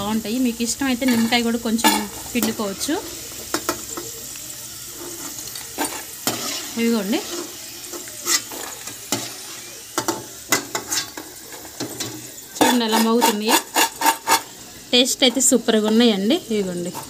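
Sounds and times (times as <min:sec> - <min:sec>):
fries sizzling in hot oil: 0:00.0 - 0:17.0.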